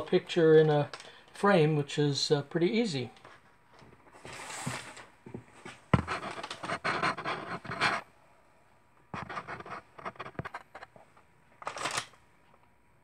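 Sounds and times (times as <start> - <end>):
handling noise scraping and rubbing: 3.2 - 8.1, 9.2 - 11.0.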